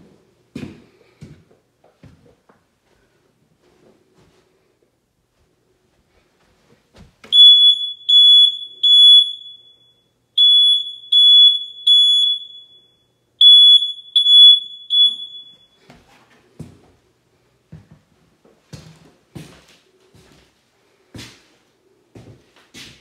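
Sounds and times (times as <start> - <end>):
smoke alarm beeping: 7.3 - 15.9.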